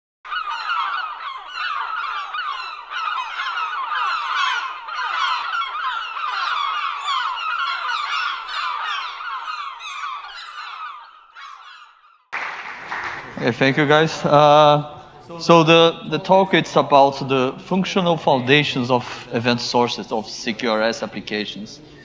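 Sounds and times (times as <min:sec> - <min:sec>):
flock of birds chirping: 0:00.3 - 0:12.3.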